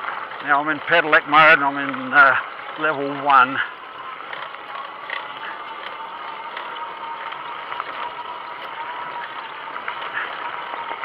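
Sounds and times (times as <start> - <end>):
bike chain clicking and rattling: 0.0 - 11.0
electric motor whine: 3.6 - 11.0.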